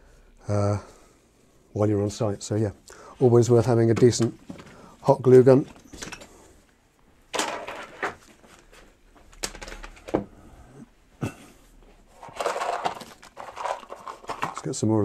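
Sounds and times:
tools rustling and clattering: 0:05.6 - 0:06.5, 0:07.3 - 0:10.4, 0:11.2 - 0:14.9.

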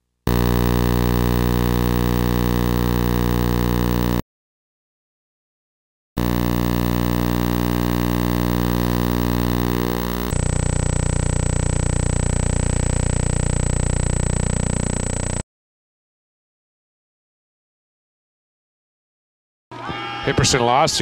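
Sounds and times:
electrical buzz: 0:00.3 - 0:04.2, 0:06.2 - 0:15.4
thin high whine: 0:00.3 - 0:04.2, 0:06.2 - 0:15.4.

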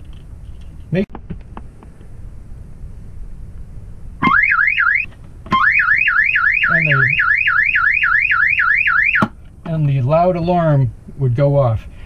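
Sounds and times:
electronic alarm siren warbling: 0:04.2 - 0:09.3.

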